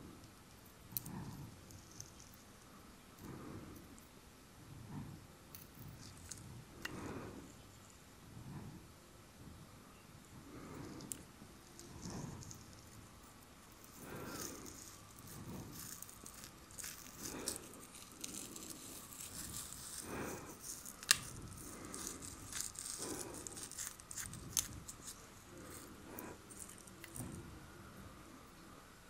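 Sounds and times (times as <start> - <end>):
fingers rustling on face: 10.4 - 27.5
tweezers clicking on hair: 13.7 - 27.3.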